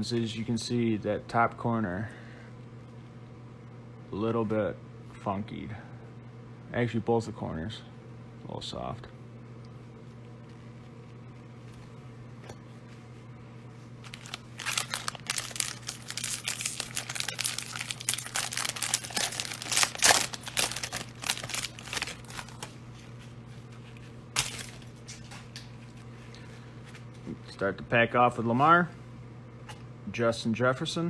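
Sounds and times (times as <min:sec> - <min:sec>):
foil wrapper tearing and crinkling: 0:14.0 - 0:22.8, 0:24.4 - 0:25.6.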